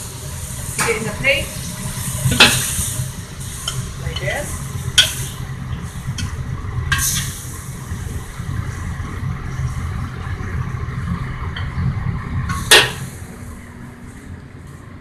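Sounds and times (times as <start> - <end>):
wok stove rumble: 0.0 - 15.0.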